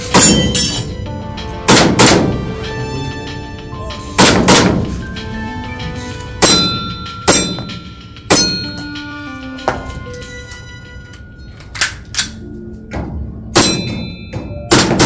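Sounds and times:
pellets clanging on metal target: 0.0 - 0.9
airsoft pistol shots: 1.7 - 2.4.

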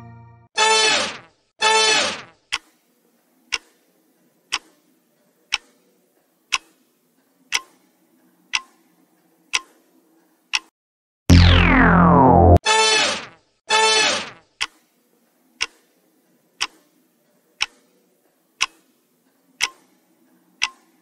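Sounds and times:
clock-like ticks: 2.5 - 2.8, 3.5 - 3.9, 4.5 - 4.9, 5.5 - 5.8, 6.5 - 6.9, 7.5 - 8.9, 9.5 - 9.8, 10.5 - 10.7, 14.6 - 14.9, 15.6 - 16.0, 16.6 - 17.0, 17.6 - 17.9, 18.6 - 20.0, 20.6 - 21.0
falling pitch sound effect: 11.3 - 12.6.

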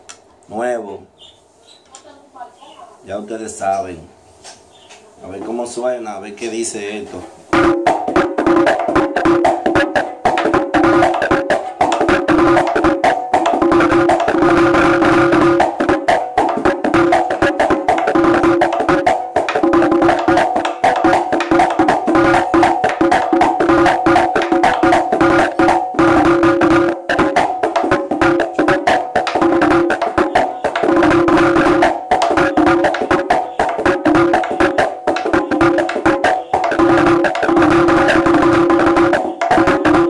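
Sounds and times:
hand drum played with stick and hand: 7.5 - 40.0.

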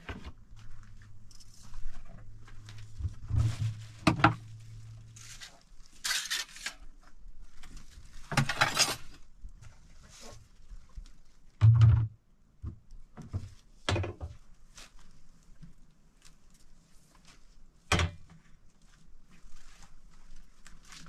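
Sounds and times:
faint clicks and rustles: 0.0 - 11.6, 12.8 - 21.0
hollow knocks of containers: 11.6 - 12.8.

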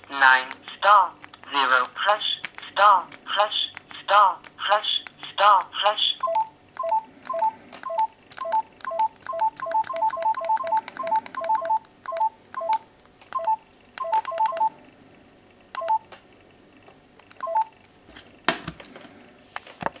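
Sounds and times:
phone keypad beeps and clicks: 6.2 - 14.8, 15.8 - 16.1, 17.4 - 17.7.

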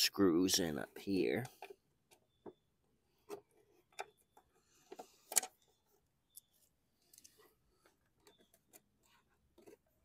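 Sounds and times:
clicks and taps of plastic parts: 3.2 - 5.6.

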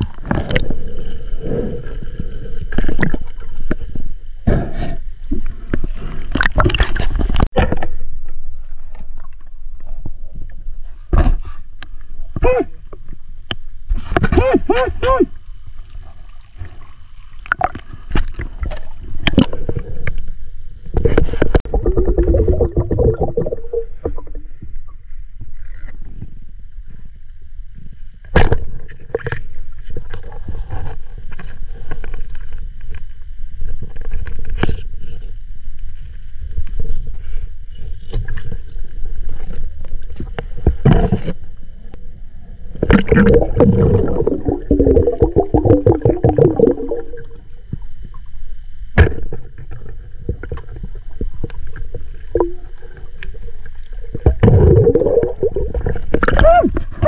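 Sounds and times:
water sloshing and gurgling: 0.0 - 57.0
low rumble: 17.8 - 57.0.

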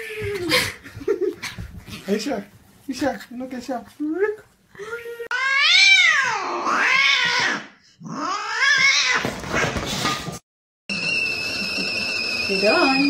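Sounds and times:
cat yowling: 5.2 - 9.3.

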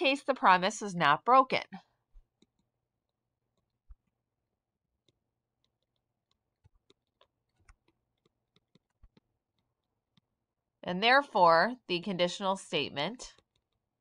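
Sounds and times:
stylus tapping on tablet screen: 2.1 - 4.2, 5.0 - 10.3.

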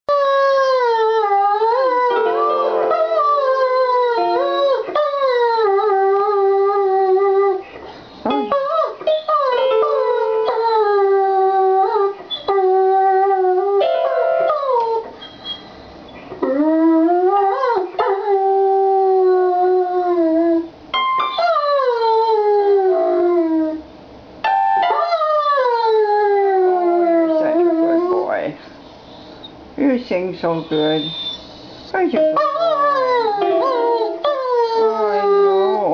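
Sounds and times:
dog howling: 0.1 - 7.6, 32.4 - 35.9.

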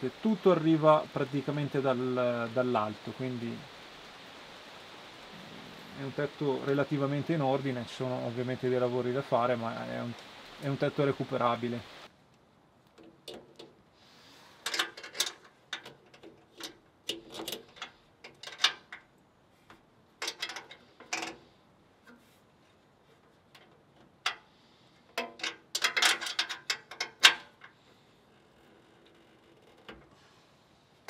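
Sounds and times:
sharp clicks and knocks: 12.9 - 13.8, 14.6 - 19.1, 19.7 - 21.4, 25.1 - 27.8.

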